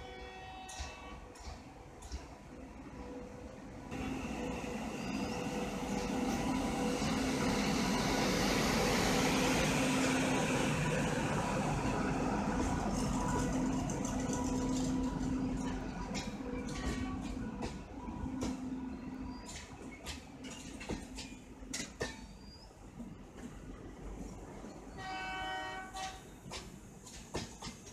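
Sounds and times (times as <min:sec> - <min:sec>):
train wheels rumbling on rail: 0:00.0 - 0:27.9
wheels clicking over rail joints: 0:12.6 - 0:18.6, 0:19.4 - 0:22.4, 0:25.9 - 0:27.9.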